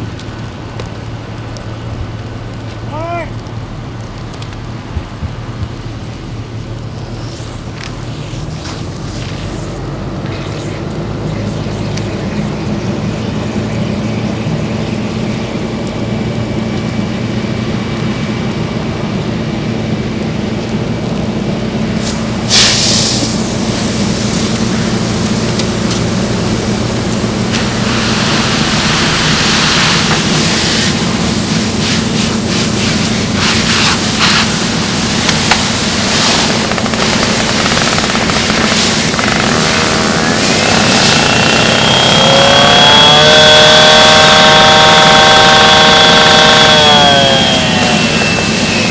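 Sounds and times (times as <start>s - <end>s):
fire hose rushing: 0.0s - 13.7s, 14.7s - 48.9s
car fire burning: 0.0s - 48.9s
engine drone: 0.0s - 48.9s
water spraying with hiss: 4.8s - 12.2s, 21.9s - 41.3s.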